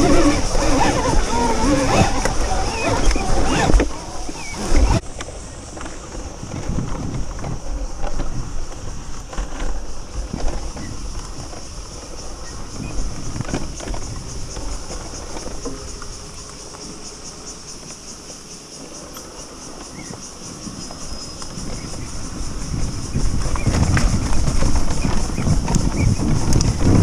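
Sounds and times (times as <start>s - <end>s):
high-pitched insect buzz: 0.0s - 5.0s, 10.6s - 26.8s
wind on microphone: 0.0s - 18.5s, 19.6s - 27.0s
dirt bike rattling over bumpy trail: 0.0s - 27.0s.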